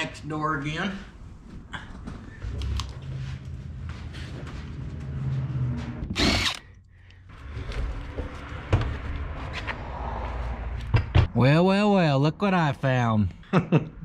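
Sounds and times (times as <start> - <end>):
power drill spurts: 6.1 - 6.7.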